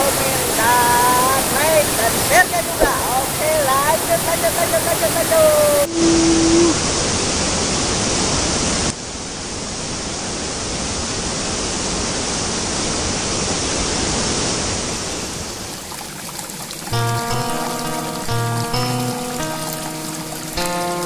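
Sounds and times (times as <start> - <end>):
rocky stream rushing: 0.0 - 5.9, 9.6 - 21.0.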